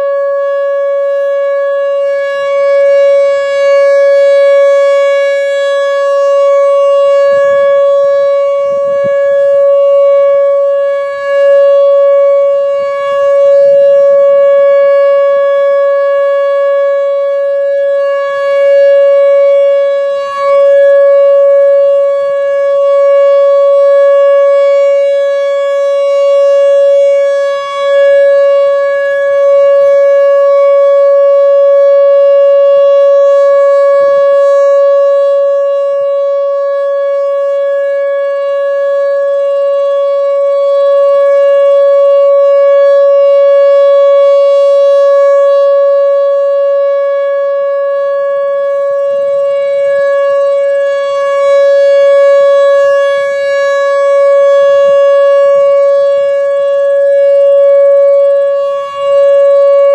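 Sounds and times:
electronic warning siren tone: 0:00.0 - 0:59.9.

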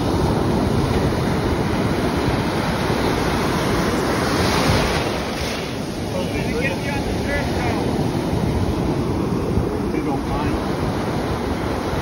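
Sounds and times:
ocean waves breaking: 0:00.0 - 0:12.0.

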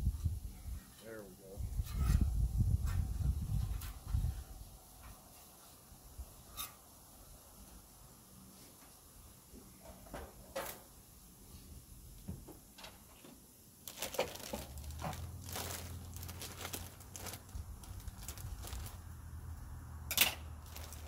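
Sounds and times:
plastic bag rustling: 0:13.8 - 0:19.2, 0:20.6 - 0:21.0
knife cutting plastic bag: 0:13.9 - 0:19.0, 0:20.6 - 0:21.0.

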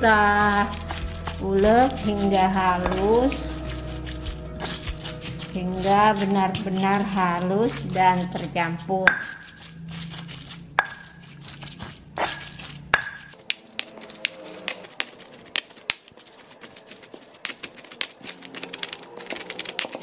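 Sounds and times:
stone pestle knocking in mortar: 0:02.8 - 0:03.4, 0:09.0 - 0:09.6, 0:13.0 - 0:16.2, 0:16.8 - 0:20.0.

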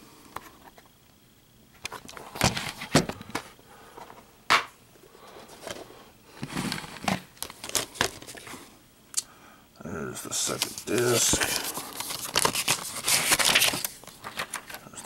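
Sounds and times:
crinkly rustling: 0:06.5 - 0:08.6, 0:10.3 - 0:15.0.

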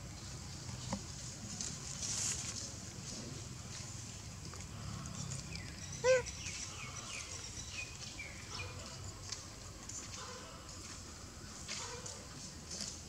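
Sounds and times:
animal call: 0:05.9 - 0:06.4.

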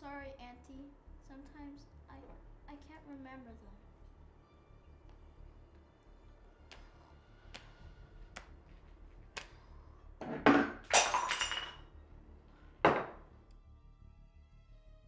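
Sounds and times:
glass shattering on tile floor: 0:10.2 - 0:11.8, 0:12.9 - 0:13.2.

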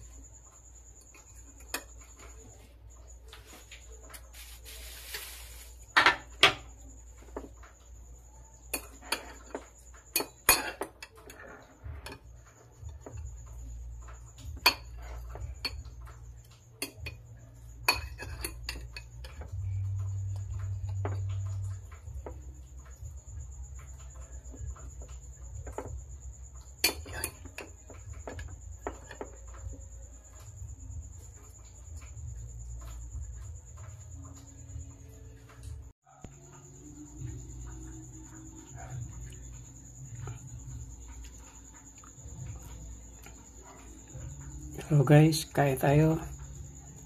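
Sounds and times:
fork clinking against bowl: 0:08.7 - 0:12.3, 0:14.6 - 0:15.9, 0:16.8 - 0:19.5, 0:26.8 - 0:29.5.

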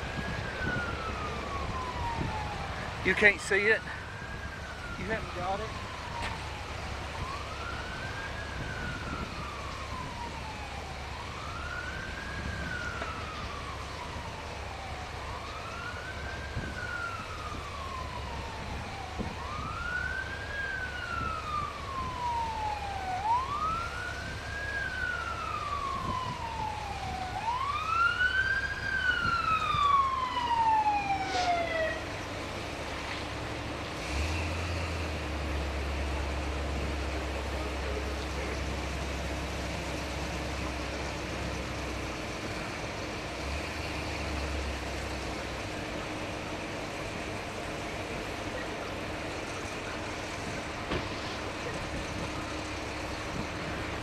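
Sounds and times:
siren wailing: 0:00.0 - 0:32.2.

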